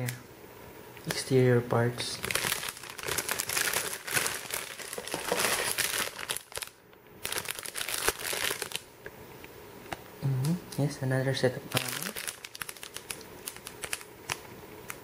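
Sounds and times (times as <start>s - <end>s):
plastic bag crinkling: 2.1s - 8.9s, 11.7s - 15.0s.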